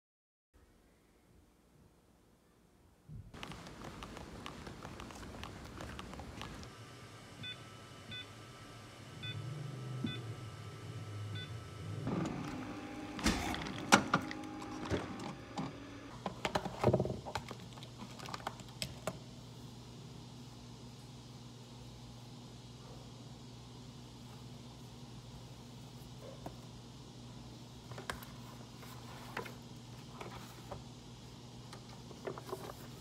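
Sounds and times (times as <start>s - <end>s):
coffee machine beeping: 7.3s - 16.1s.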